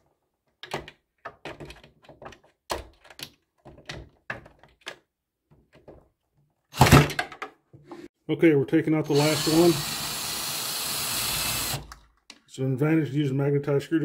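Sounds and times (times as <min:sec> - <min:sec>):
knocks and clicks of drill handling: 0:00.4 - 0:06.2, 0:06.8 - 0:07.6
cordless drill running: 0:09.1 - 0:11.9.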